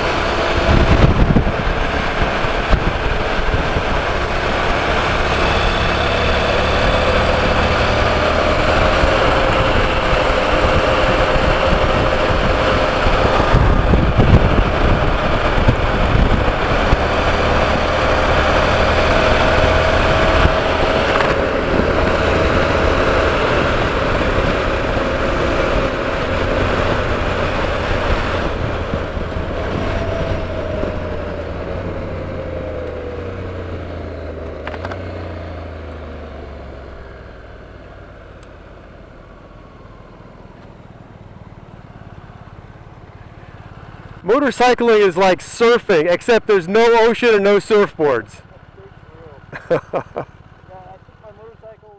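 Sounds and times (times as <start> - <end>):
wind rush: 0.0 - 33.7
motorcycle engine drone: 0.0 - 51.9.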